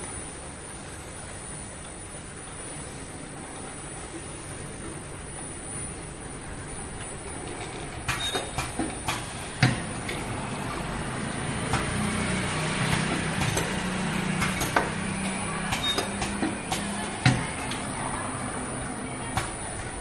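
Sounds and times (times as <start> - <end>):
low machine hum: 0.0 - 20.0
pneumatic clicks and air hisses: 0.1 - 18.0
bottle filling machine running: 3.4 - 20.0.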